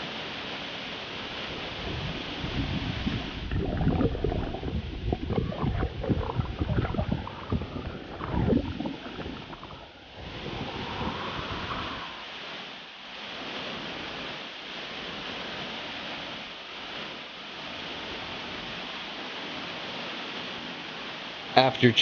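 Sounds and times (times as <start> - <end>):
small waterfall rushing: 0.0 - 21.6
water splashing and gurgling: 1.4 - 13.5.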